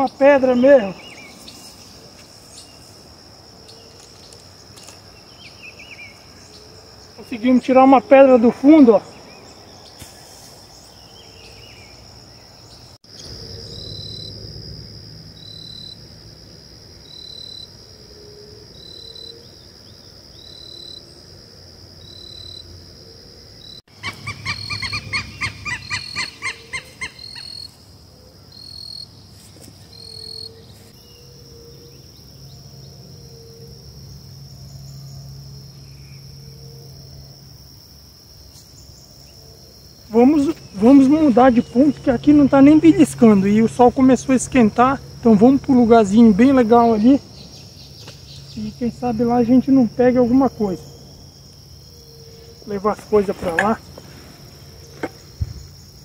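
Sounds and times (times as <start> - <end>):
high-pitched insect drone: 0.0 - 29.2, 29.9 - 56.0
rapid trill of calls: 23.6 - 27.8.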